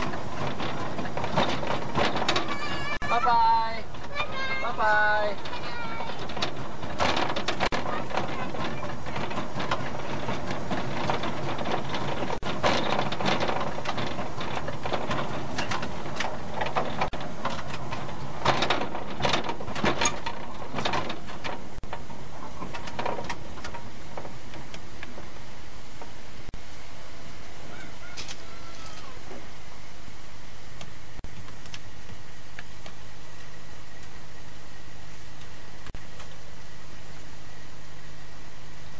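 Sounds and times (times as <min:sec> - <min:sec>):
knocks and clicks from wheels: 0:00.0 - 0:26.6
steam locomotive running: 0:00.0 - 0:38.9.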